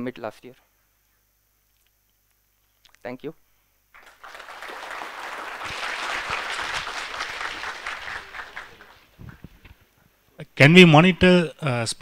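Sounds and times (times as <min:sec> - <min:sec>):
audience applauding: 0:04.0 - 0:09.1.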